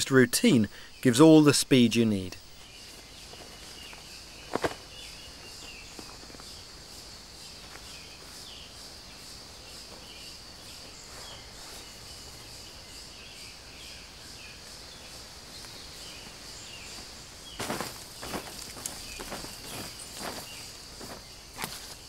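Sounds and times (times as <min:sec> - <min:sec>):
insects droning: 0:00.0 - 0:22.0
loud rustling: 0:17.0 - 0:22.0.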